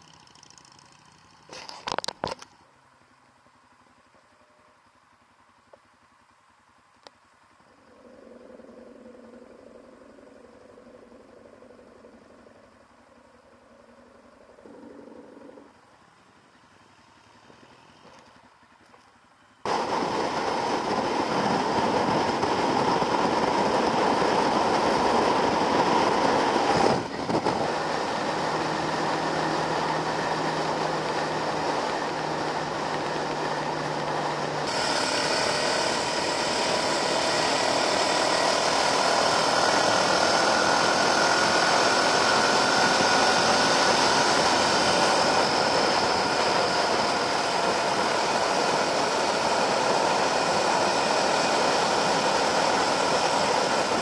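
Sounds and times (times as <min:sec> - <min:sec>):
motorcycle engine running: 0:00.0 - 0:01.5, 0:19.7 - 0:54.0
wind rushing over camera: 0:19.7 - 0:54.0.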